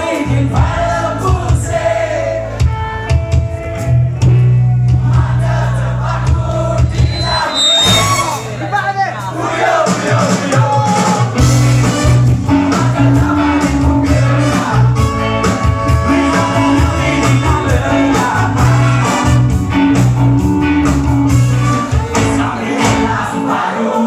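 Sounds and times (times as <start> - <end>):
bass line: 0.0 - 23.4
ska band playing live: 0.0 - 24.0
horn section: 11.4 - 20.2, 21.2 - 23.1
person singing: 16.0 - 19.2.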